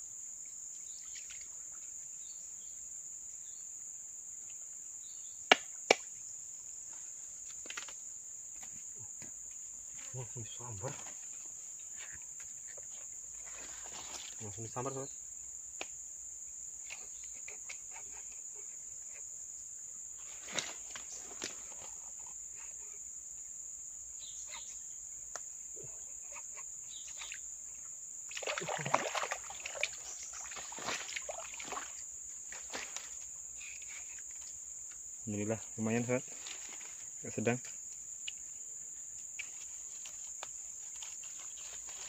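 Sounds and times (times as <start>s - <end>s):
insect drone: 0.0s - 42.0s
rustling and scuffing: 10.9s - 14.4s, 29.9s - 33.4s, 36.3s - 37.1s, 39.4s - 42.0s.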